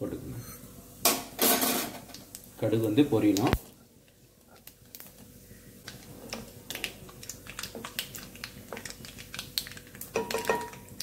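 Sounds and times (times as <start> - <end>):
seeds popping in hot oil: 5.8 - 11.0.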